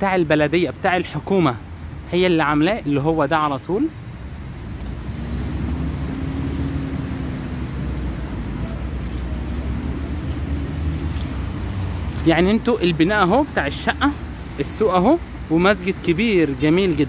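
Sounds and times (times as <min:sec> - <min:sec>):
low rumble of road traffic: 0:00.0 - 0:17.0
passing vehicle engine hum: 0:03.9 - 0:17.0.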